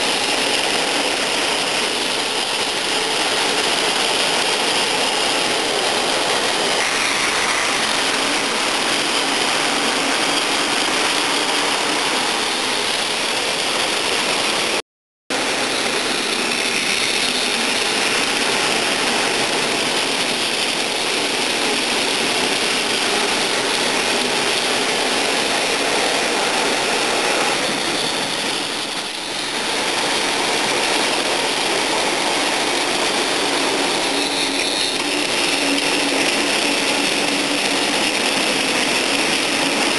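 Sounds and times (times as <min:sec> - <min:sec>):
toy train motors whirring: 0:00.0 - 0:14.8
toy wheels rolling on track: 0:15.4 - 0:39.9.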